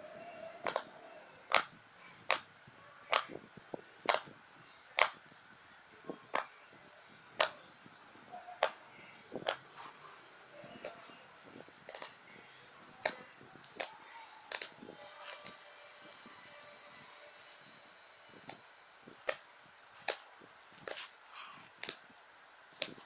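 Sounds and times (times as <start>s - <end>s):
fidget toy bubbles popping: 0.6s - 0.8s, 1.5s - 1.7s, 3.1s - 3.3s, 4.1s - 4.3s, 5.0s - 5.2s, 7.4s - 7.6s, 11.9s - 12.1s, 14.5s - 14.7s, 21.8s - 22.0s.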